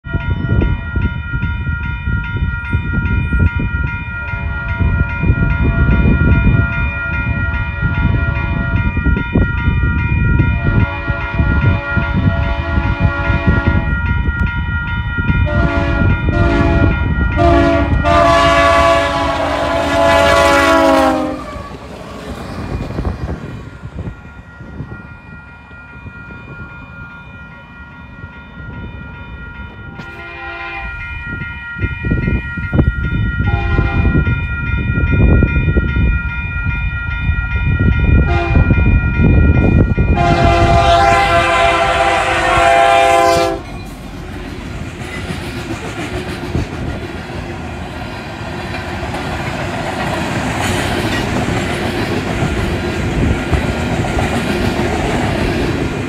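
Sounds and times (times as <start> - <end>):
crossing bell ringing: 0.0 - 56.0
train rumbling on rails: 0.0 - 56.0
locomotive air horn blasts: 10.7 - 13.9, 15.4 - 21.8, 30.0 - 31.0, 33.5 - 34.2, 38.3 - 38.7, 40.2 - 43.7.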